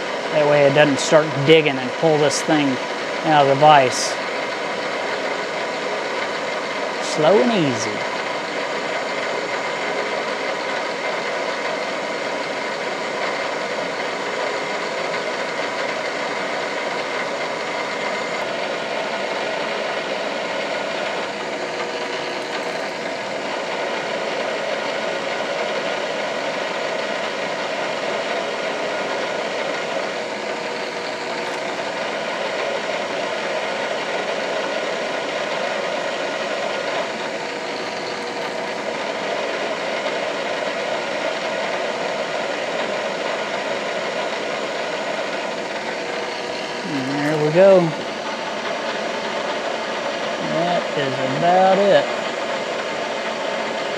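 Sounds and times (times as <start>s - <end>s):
drill press motor running: 0.0s - 53.9s
drill cutting into metal: 11.2s - 25.4s, 26.2s - 53.7s.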